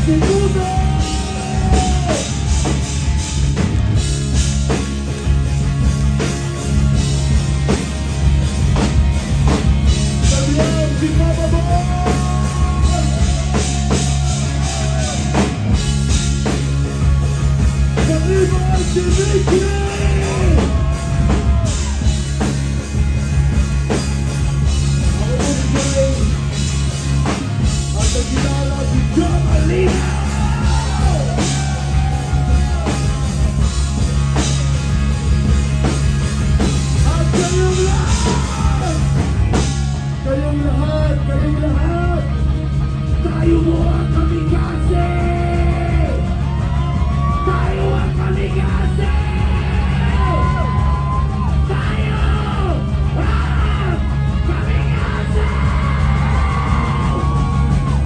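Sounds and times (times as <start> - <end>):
man singing into microphone: 0.0 - 2.2, 28.0 - 31.3, 37.0 - 39.0, 43.2 - 46.2, 47.3 - 50.6, 51.6 - 56.0
bass guitar: 0.0 - 58.0
drum kit: 0.0 - 58.0
electric guitars: 0.0 - 58.0.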